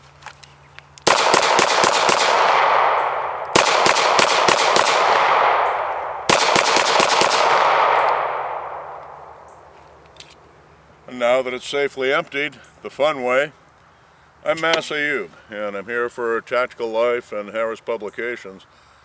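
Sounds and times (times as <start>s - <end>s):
pistol shots with echo: 1.0s - 9.7s.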